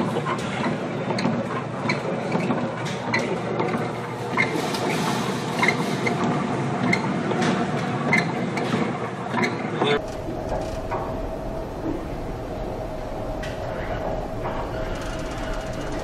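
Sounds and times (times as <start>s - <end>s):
steady low rumble: 10.0s - 16.0s
rattling clicks: 13.4s - 16.0s.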